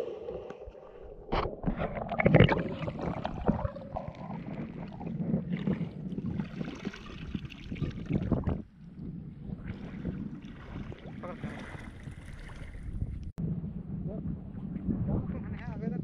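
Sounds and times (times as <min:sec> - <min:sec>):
person wading through water: 0:00.0 - 0:13.1
water pouring from a bowl: 0:01.5 - 0:08.6.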